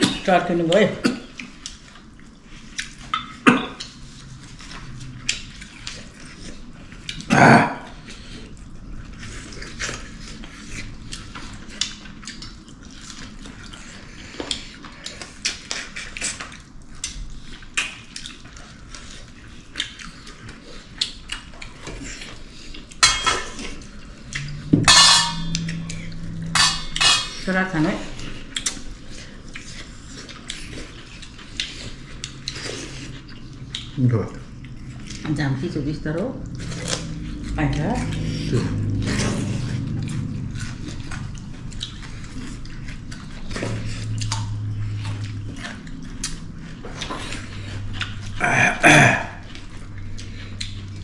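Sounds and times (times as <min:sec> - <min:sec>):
dishes clattering: 0:23.0 - 0:23.8, 0:24.5 - 0:27.5
spoons and dishes clinking: 0:24.4 - 0:27.5.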